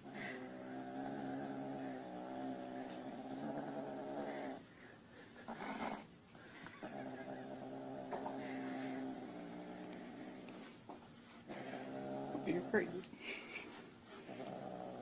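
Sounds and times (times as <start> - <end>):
cat growling: 6.8 - 10.6.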